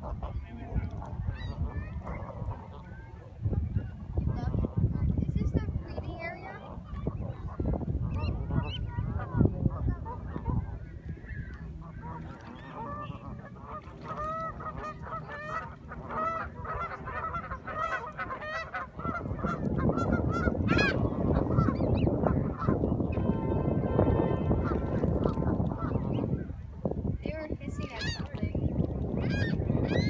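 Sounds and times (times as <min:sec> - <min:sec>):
geese honking: 0:00.0 - 0:03.4, 0:06.4 - 0:26.6, 0:27.8 - 0:28.5.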